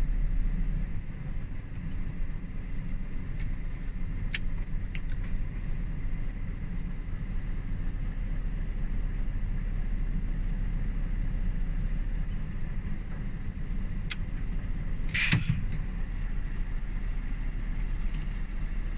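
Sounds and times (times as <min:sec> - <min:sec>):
truck engine humming: 0:00.0 - 0:18.9
click: 0:04.3 - 0:05.4, 0:14.0 - 0:14.5, 0:15.1 - 0:15.9
brief hiss: 0:15.1 - 0:15.7.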